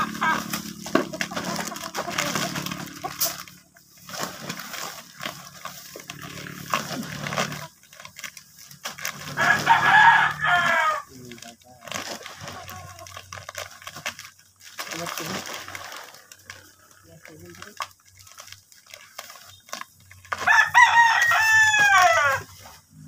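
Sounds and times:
rooster crowing: 0:00.0 - 0:00.5, 0:09.3 - 0:11.1, 0:20.4 - 0:22.6
plastic bags rustling: 0:00.0 - 0:23.0.

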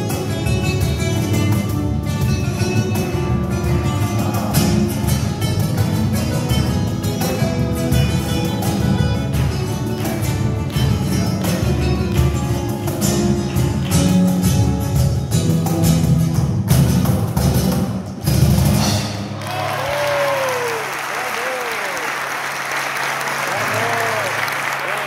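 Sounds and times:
flamenco guitar strumming: 0:00.0 - 0:19.4
applause: 0:09.3 - 0:12.6, 0:19.4 - 0:25.0.

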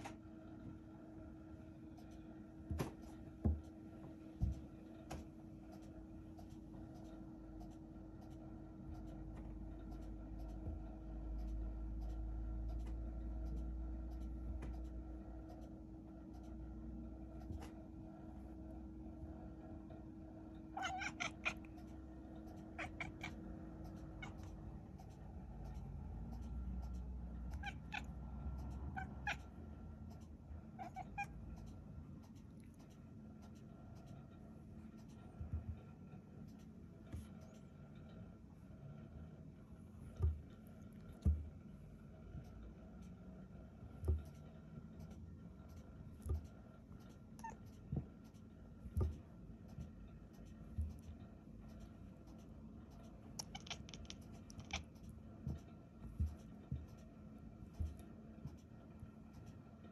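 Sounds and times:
cat meowing: 0:20.8 - 0:21.6, 0:22.8 - 0:23.4, 0:27.5 - 0:28.1, 0:30.8 - 0:31.3, 0:53.4 - 0:54.9.

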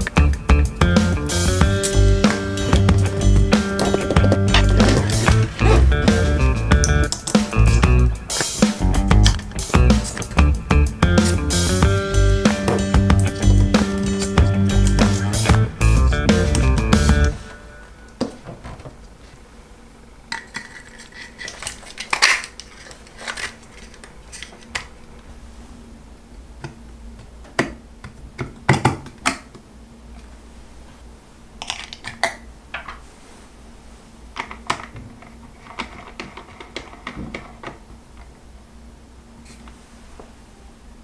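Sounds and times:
small metal parts clinking: 0:20.4 - 0:24.7.

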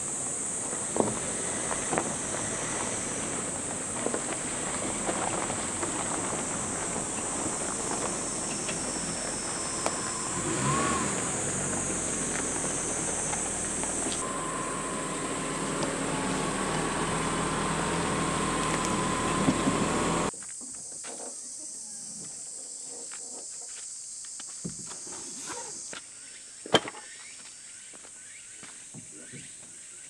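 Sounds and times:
motor vehicle noise: 0:00.0 - 0:20.3
high steady drone: 0:12.8 - 0:20.3.

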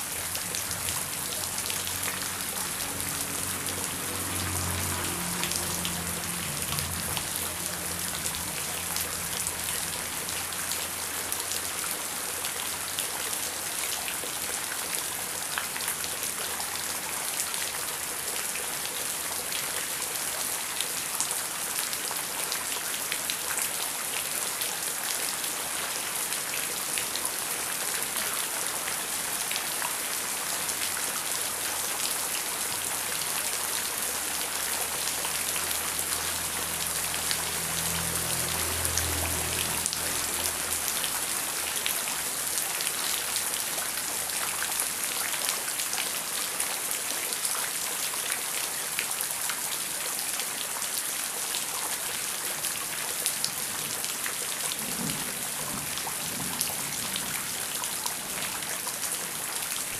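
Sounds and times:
heavy rain hiss: 0:00.0 - 0:13.8, 0:24.7 - 0:47.2.

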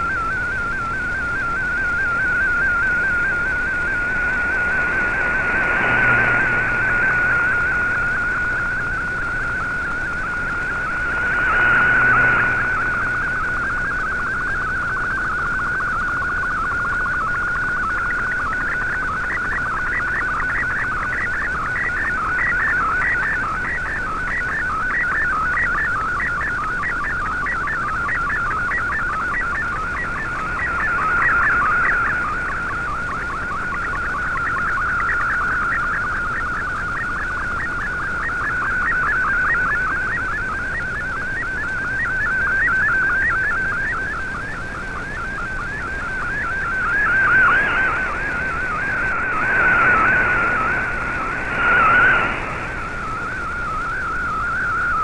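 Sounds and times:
faint static hiss: 0:00.0 - 0:21.0, 0:42.5 - 0:55.0
warbling whistling data tone: 0:00.0 - 0:55.0.

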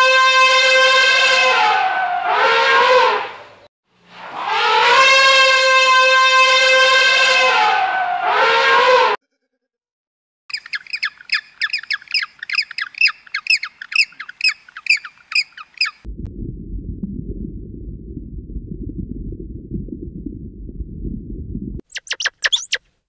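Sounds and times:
squawking bird calls: 0:10.5 - 0:16.0, 0:21.9 - 0:22.8
low rumbling noise: 0:16.0 - 0:21.9.

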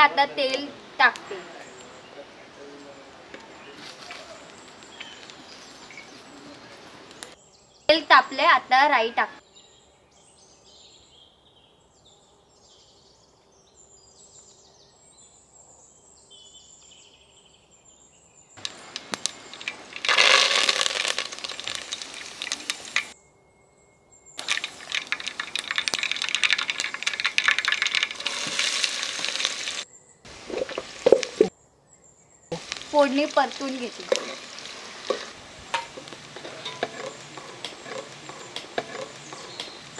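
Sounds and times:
hot oil sizzling and crackling: 0:18.6 - 0:23.2, 0:24.4 - 0:31.5, 0:32.5 - 0:39.9.

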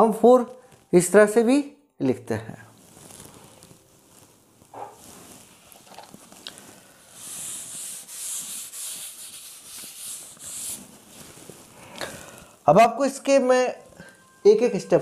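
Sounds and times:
duster wiping chalkboard: 0:07.1 - 0:11.7.

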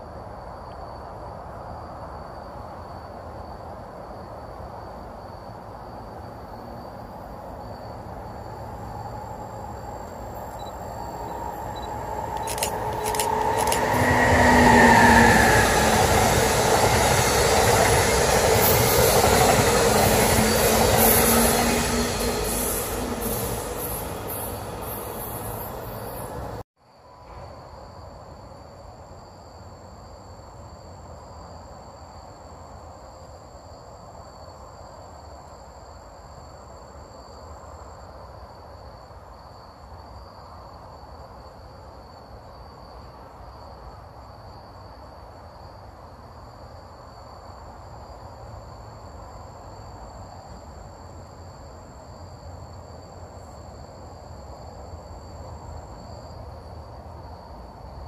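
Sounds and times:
insect chorus chirring: 0:01.9 - 0:26.6, 0:46.5 - 0:58.0.

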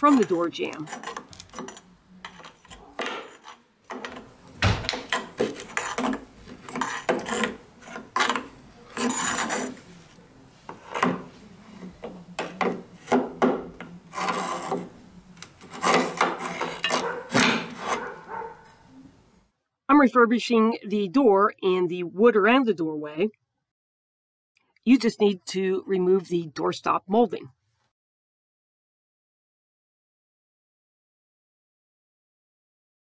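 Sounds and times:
metal scraping against wood: 0:00.0 - 0:18.9.

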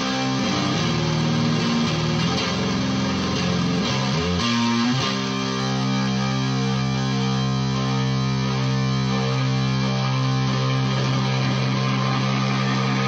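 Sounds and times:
fuzzed electric guitar chord ringing: 0:00.0 - 0:13.0.

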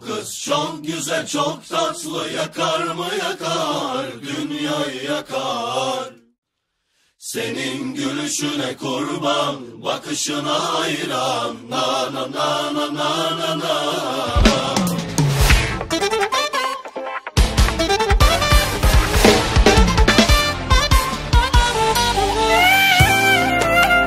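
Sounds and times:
voices chanting: 0:00.0 - 0:06.2, 0:07.2 - 0:15.2.

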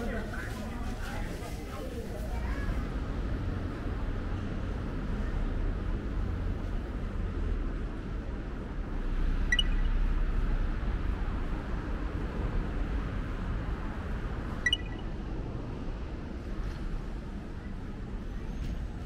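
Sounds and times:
low rumble of traffic: 0:00.0 - 0:19.0
high-pitched pings: 0:09.5 - 0:10.2, 0:14.7 - 0:15.2.

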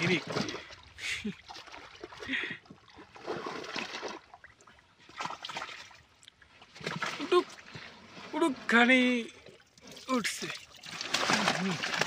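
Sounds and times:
fish splashing in water: 0:09.8 - 0:12.0.

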